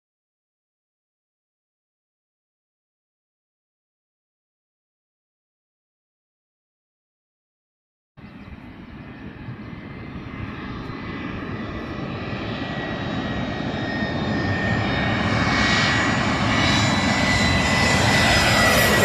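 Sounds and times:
jet airliner engines rumbling: 0:08.2 - 0:19.0
jet engine whine: 0:08.2 - 0:19.0.

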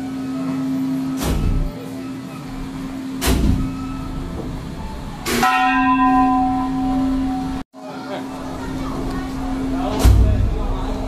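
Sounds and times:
temple bell ringing: 0:05.3 - 0:07.6.

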